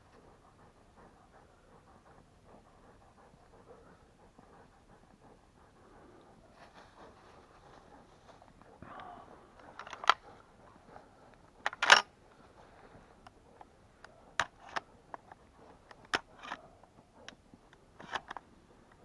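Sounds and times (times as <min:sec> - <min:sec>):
handling clicks and knocks: 0:09.6 - 0:10.3, 0:11.3 - 0:12.1, 0:13.2 - 0:19.0.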